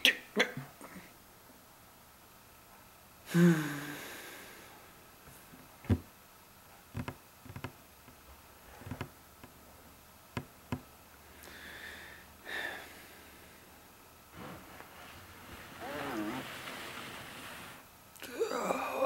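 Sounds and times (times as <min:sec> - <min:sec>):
breathy sigh: 0:03.3 - 0:04.7, 0:18.2 - 0:19.0
knocks and taps on wooden table: 0:07.0 - 0:07.8.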